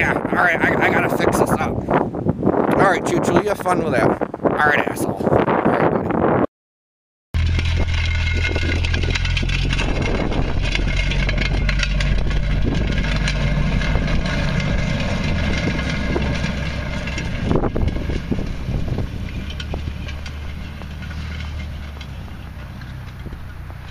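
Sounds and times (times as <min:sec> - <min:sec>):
car engine droning: 0:07.4 - 0:23.9
crackling and rattling: 0:07.4 - 0:23.9.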